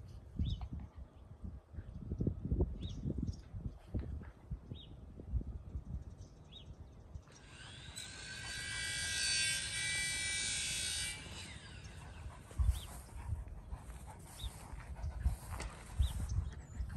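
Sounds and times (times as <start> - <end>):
high-pitched motor: 7.4 - 12.9.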